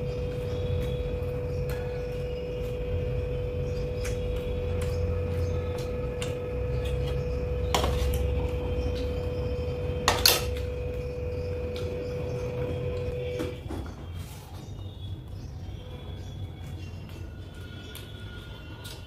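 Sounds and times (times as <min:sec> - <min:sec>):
steady low hum: 0:00.0 - 0:13.6.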